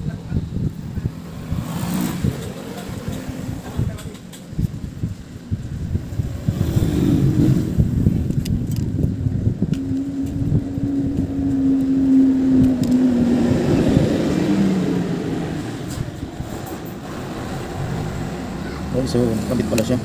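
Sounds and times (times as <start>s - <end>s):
vehicle engine humming: 0.0s - 20.0s.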